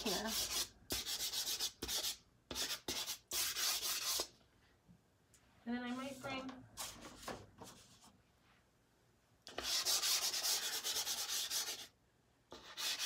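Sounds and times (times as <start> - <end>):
pastel stick scratching on paper: 0.0 - 4.3, 9.5 - 11.9, 12.5 - 13.0.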